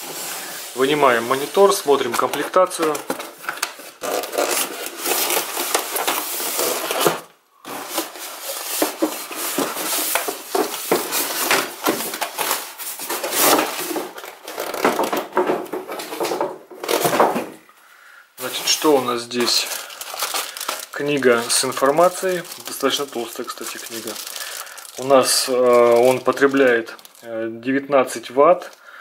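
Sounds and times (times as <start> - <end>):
cardboard and foam scraping: 0.0 - 3.2
plastic wrap crinkling: 0.5 - 17.2, 18.4 - 28.8.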